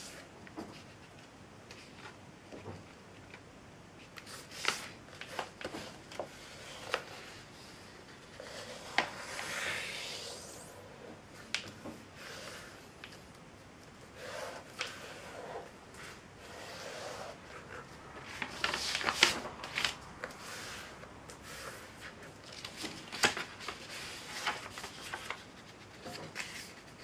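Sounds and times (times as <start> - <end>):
paper rustling and creasing: 4.0 - 9.6, 11.3 - 27.0
sharp paper crackles: 18.2 - 20.1, 22.4 - 27.0.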